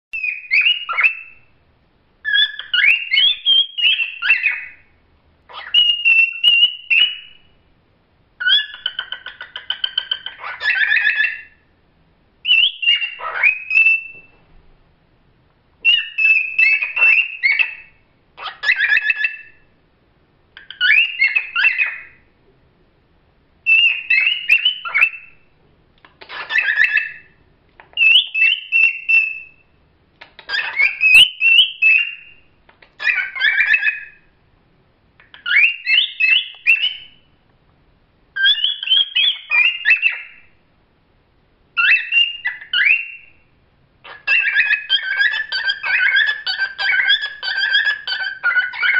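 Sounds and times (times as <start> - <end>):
cockatiels whistling and warbling: 0.2 - 1.5, 2.2 - 4.9, 5.5 - 7.5, 8.4 - 11.6, 12.4 - 14.4, 15.8 - 19.7, 20.6 - 22.2, 23.7 - 25.4, 26.2 - 29.6, 30.2 - 34.2, 35.2 - 37.3, 38.4 - 40.5, 41.8 - 43.4, 44.0 - 48.9.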